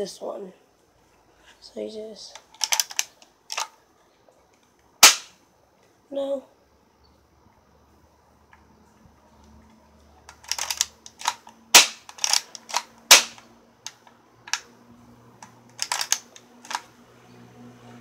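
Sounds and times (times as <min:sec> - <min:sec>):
air pistol clicks and snaps: 0:02.4 - 0:03.7, 0:05.0 - 0:05.4, 0:10.3 - 0:14.7, 0:15.7 - 0:16.9.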